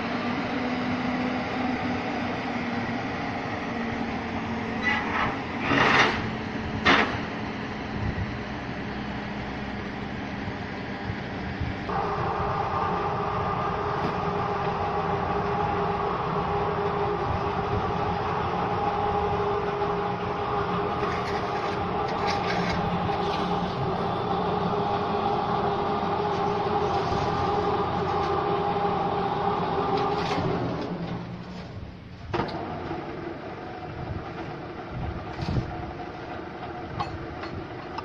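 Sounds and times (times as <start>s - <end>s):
pipe making machine rumbling: 0.0s - 38.0s
machine whining tone: 11.9s - 31.3s.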